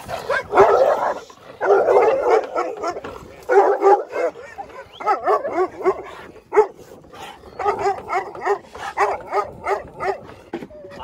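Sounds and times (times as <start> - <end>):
dogs barking: 0.0 - 11.0.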